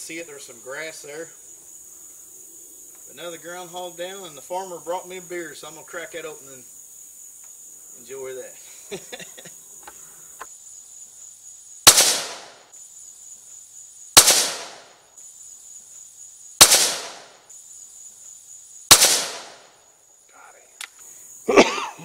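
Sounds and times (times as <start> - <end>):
high insect drone: 0.0 - 22.0
rifle shots: 11.9 - 12.6, 14.2 - 15.0, 16.6 - 17.4, 18.9 - 19.7.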